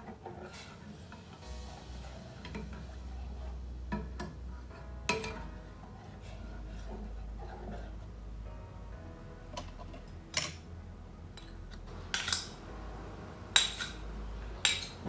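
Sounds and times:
spoons clinking against metal pot: 12.1 - 12.6, 13.6 - 14.0, 14.6 - 15.0.

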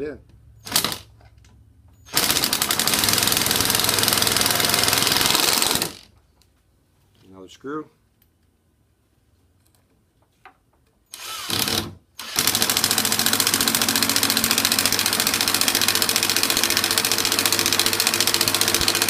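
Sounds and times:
impact driver hammering: 11.5 - 19.0.

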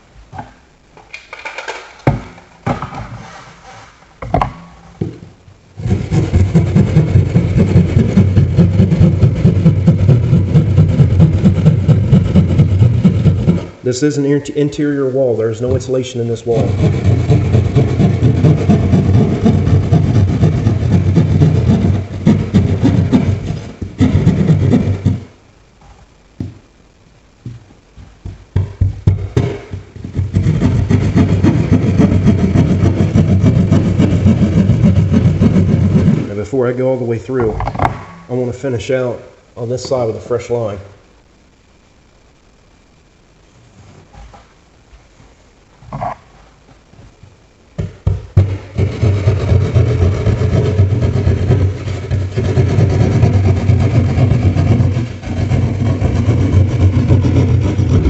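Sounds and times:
knocks and scrapes: 0.3 - 14.2, 15.6 - 38.7, 45.8 - 58.0
knocks and taps: 4.2 - 5.2, 25.8 - 26.6, 27.4 - 36.2, 47.8 - 51.7
hand saw cutting drywall: 5.8 - 13.7, 16.5 - 25.2, 29.1 - 36.3, 48.4 - 58.0.

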